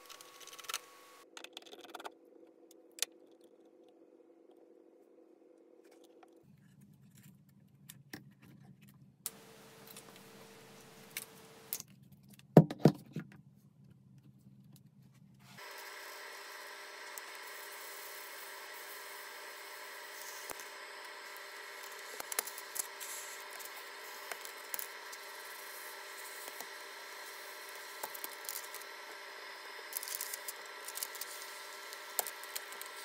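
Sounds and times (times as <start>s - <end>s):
hot air gun whining hum: 9.3s - 11.8s, 15.6s - 33.0s.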